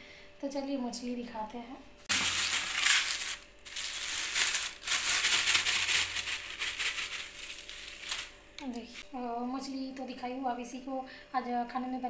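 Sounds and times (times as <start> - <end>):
plastic bag rustling: 2.1 - 9.0.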